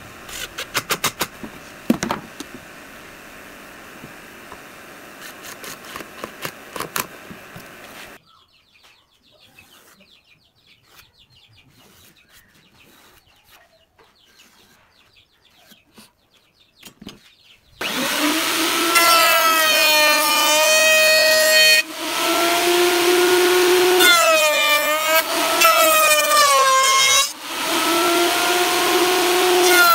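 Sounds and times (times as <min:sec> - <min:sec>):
steady hiss: 0:00.0 - 0:08.2
router motor whine: 0:01.4 - 0:08.2, 0:17.8 - 0:29.9.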